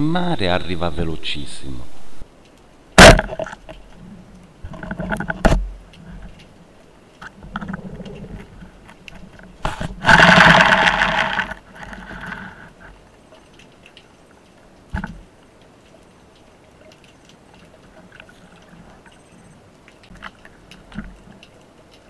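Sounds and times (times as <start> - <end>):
speargun firing underwater: 3.0 - 3.5
underwater knocks and clicks: 4.6 - 6.6, 7.2 - 14.2, 14.9 - 15.3, 15.9 - 22.0.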